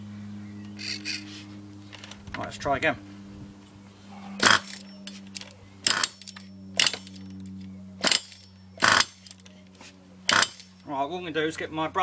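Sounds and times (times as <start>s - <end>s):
steady low hum: 0.0s - 12.0s
glow engine bursts: 4.4s - 9.5s, 10.3s - 10.8s.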